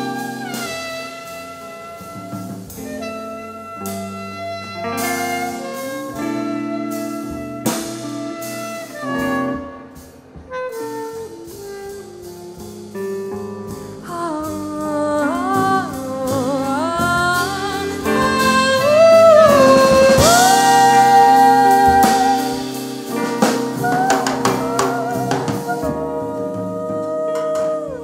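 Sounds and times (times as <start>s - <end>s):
band playing instrumental: 0.0s - 28.0s
sharp drum hit: 15.9s - 26.4s.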